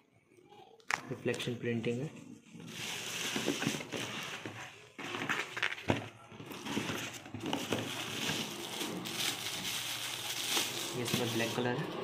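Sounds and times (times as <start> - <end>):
plastic wrapping crinkling: 2.6 - 12.0.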